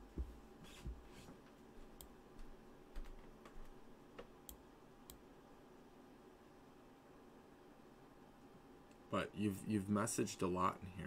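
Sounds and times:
faint clicks and taps: 0.1s - 5.2s.

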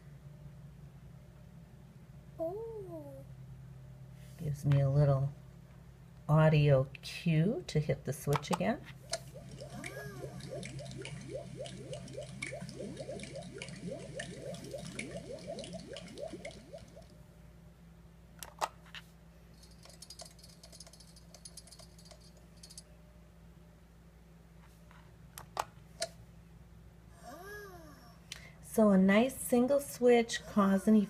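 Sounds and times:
rising bubble blips: 9.1s - 17.2s.

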